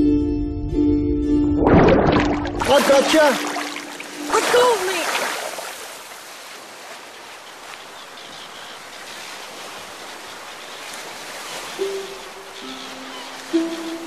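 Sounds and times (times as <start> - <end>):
long held music notes: 0.0 - 1.7
rushing water: 1.6 - 14.0.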